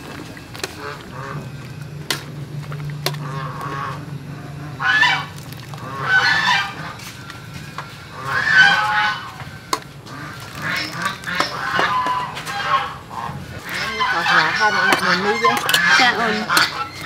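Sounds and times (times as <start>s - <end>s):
goose calling: 3.2s - 7.0s, 8.1s - 9.5s, 10.1s - 17.0s.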